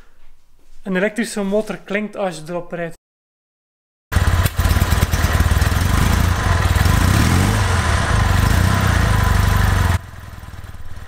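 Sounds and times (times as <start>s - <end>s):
motorcycle engine revving: 4.1s - 11.0s.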